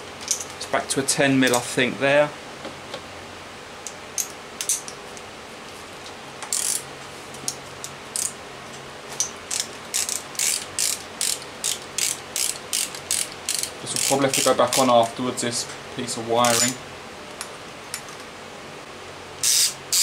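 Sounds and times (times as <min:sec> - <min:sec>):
ratchet wrench clicking: 0:06.5 - 0:06.8, 0:09.2 - 0:14.9, 0:19.4 - 0:20.0.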